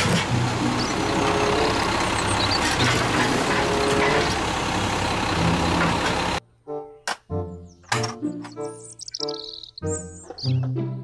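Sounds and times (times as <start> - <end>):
garbage truck engine running: 0.0 - 6.4.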